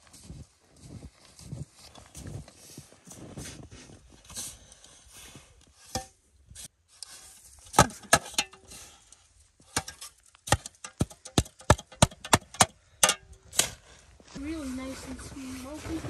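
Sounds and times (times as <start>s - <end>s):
snow shovelled into metal pot: 2.5s - 10.2s, 13.5s - 16.0s.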